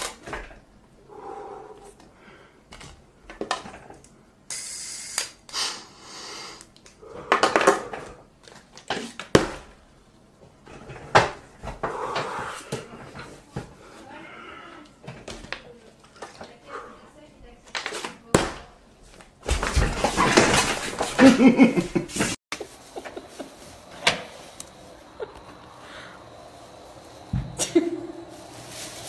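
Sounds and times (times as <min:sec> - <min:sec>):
brief hissing noise: 0:04.5 - 0:06.6.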